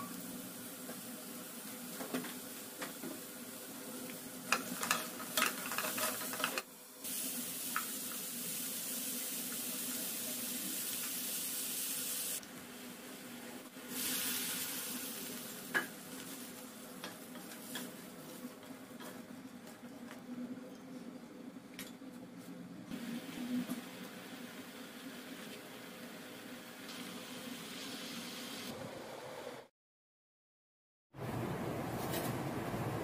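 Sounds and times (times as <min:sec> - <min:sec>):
food sizzling in a frying pan: 0:00.0 - 0:13.2, 0:13.8 - 0:18.6, 0:23.0 - 0:28.7
utensil scraping a pan: 0:04.5 - 0:06.6.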